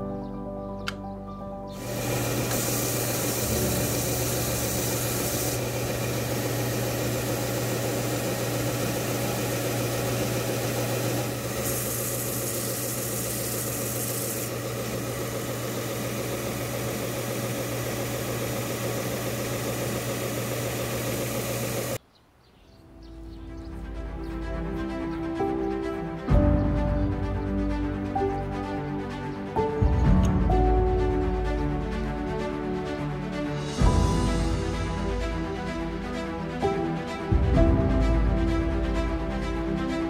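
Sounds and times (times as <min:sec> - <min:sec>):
belt sander motor hum: 0:01.8 - 0:22.0
wood grinding on sanding belt: 0:01.8 - 0:22.0.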